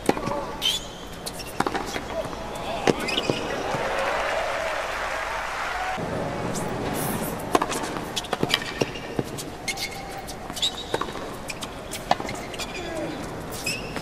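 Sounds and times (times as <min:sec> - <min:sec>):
tennis ball bouncing on hard court: 0:00.0 - 0:03.9, 0:07.5 - 0:12.8
crowd noise: 0:01.9 - 0:14.0.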